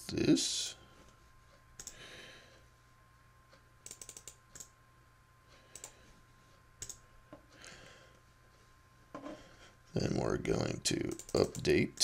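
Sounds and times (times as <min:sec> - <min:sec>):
computer keyboard clicks: 0:01.8 - 0:02.0, 0:03.8 - 0:04.7, 0:05.7 - 0:06.0, 0:06.8 - 0:07.0, 0:11.1 - 0:11.7.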